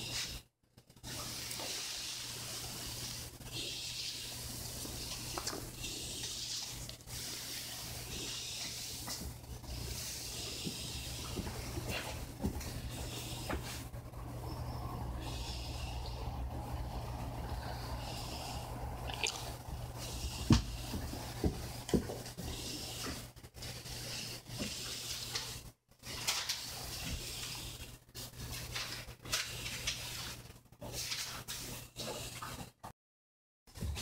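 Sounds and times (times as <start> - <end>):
steady low hum: 7.9 - 21.9
rustling and handling noise: 19.1 - 32.7.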